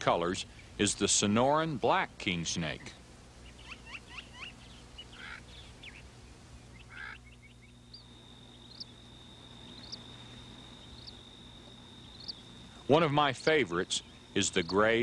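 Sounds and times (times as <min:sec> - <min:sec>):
bird chirps rising: 0:06.7 - 0:15.0.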